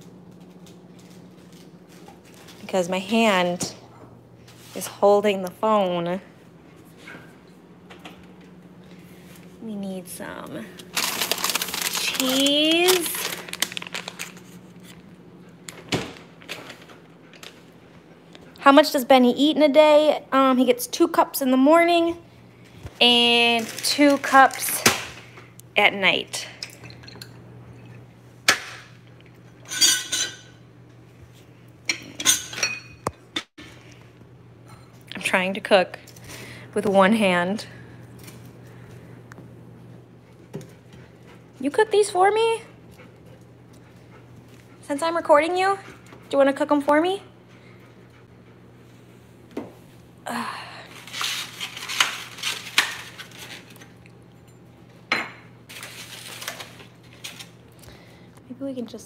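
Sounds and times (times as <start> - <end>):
steady low hum: 0.0 - 59.0
glass and metal items clinking: 26.6 - 28.0.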